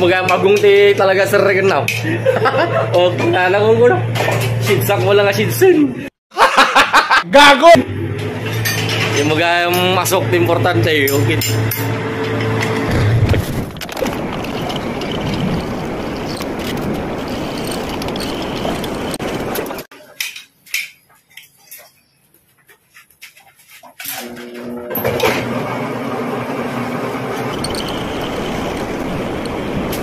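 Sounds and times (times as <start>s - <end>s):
metal lathe running: 24.2s - 30.0s
low hum: 27.4s - 30.0s.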